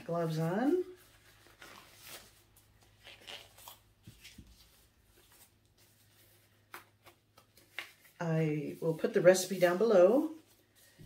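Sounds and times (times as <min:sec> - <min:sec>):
gloves rustling: 0:00.0 - 0:11.0.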